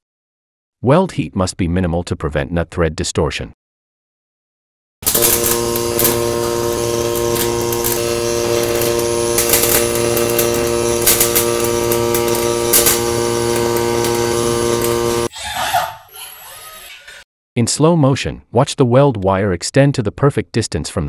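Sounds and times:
welding arc humming and crackling: 0:05.0 - 0:15.3.

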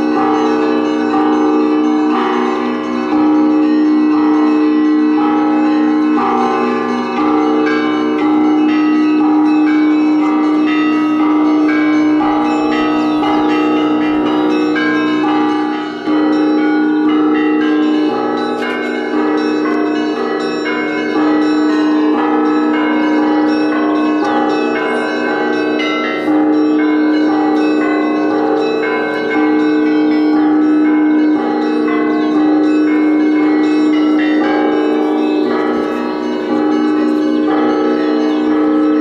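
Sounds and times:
deep bell tolling: 0:00.0 - 0:39.0
small church bells ringing: 0:00.0 - 0:39.0.

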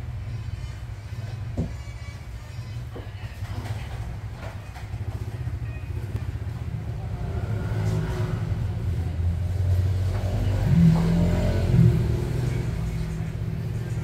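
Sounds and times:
low rumble of motor traffic: 0:00.0 - 0:14.0
loud engine note: 0:07.0 - 0:13.0.

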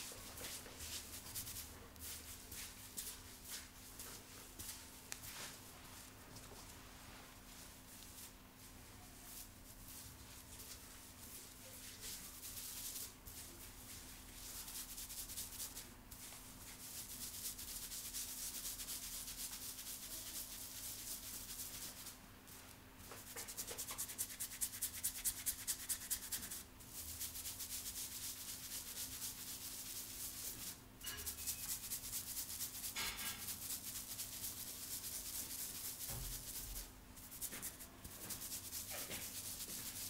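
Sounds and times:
fingertips scratching hair: 0:23.1 - 0:26.6, 0:27.2 - 0:36.6, 0:37.2 - 0:40.0.

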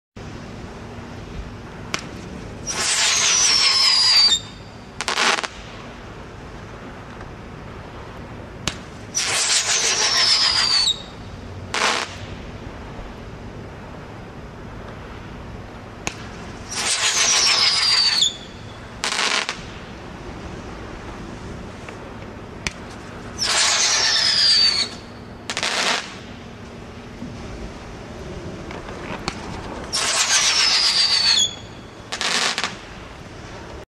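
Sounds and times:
firework crackle: 0:00.7 - 0:33.8
firework whistle: 0:02.6 - 0:05.9, 0:08.6 - 0:12.4, 0:16.0 - 0:20.0, 0:23.3 - 0:26.5, 0:28.8 - 0:33.0.

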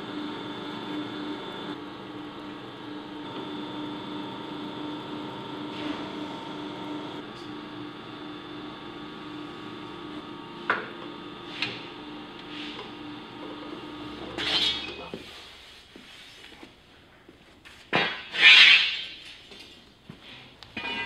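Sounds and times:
machine humming: 0:00.0 - 0:15.1.

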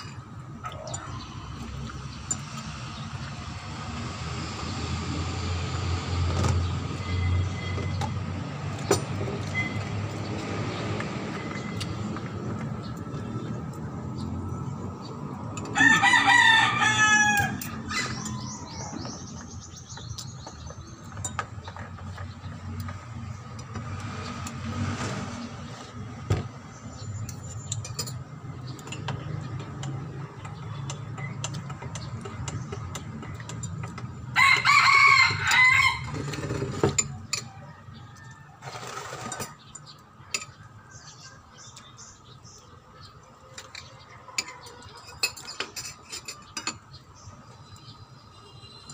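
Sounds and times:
rooster crowing: 0:15.7 - 0:18.6, 0:34.4 - 0:36.2.

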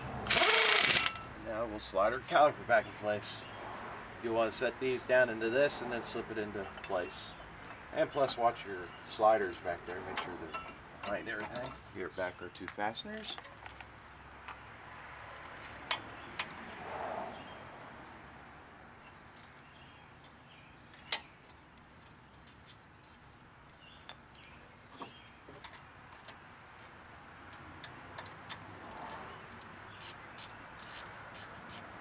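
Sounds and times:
sharp metallic clicks of bolts: 0:00.3 - 0:01.3, 0:25.6 - 0:31.9.

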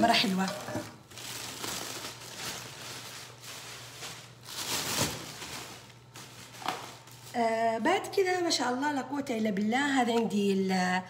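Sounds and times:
rustling and handling noises: 0:00.0 - 0:07.5.

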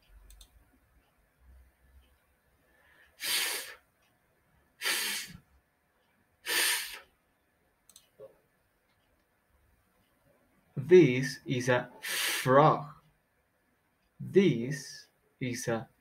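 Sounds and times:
person making fff sound: 0:03.2 - 0:03.8, 0:04.8 - 0:05.4, 0:06.4 - 0:07.0.

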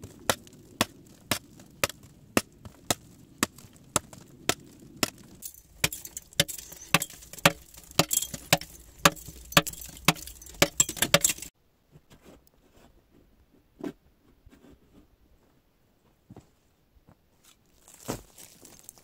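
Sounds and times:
footsteps on gravel: 0:00.0 - 0:11.5, 0:17.7 - 0:19.0
pick chipping rock: 0:00.0 - 0:11.5.

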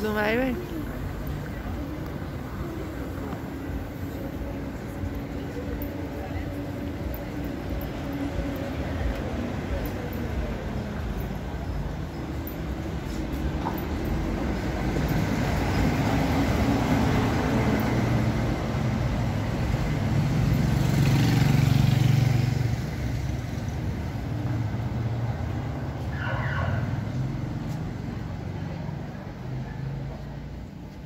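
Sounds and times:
low traffic rumble: 0:00.0 - 0:31.0
car passing close: 0:07.3 - 0:29.2.

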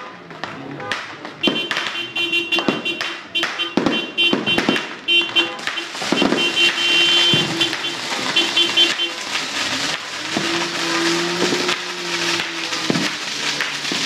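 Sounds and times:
fireworks bangs and pops: 0:00.0 - 0:14.0.

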